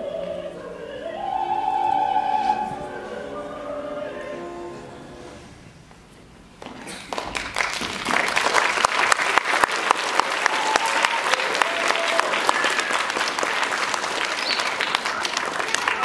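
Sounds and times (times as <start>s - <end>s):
audience applauding: 6.7s - 16.0s.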